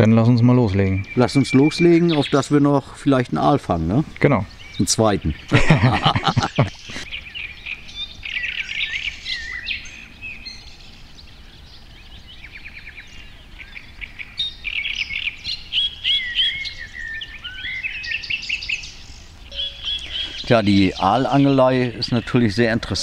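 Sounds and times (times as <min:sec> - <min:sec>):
songbirds chirping and warbling: 0:00.0 - 0:23.0.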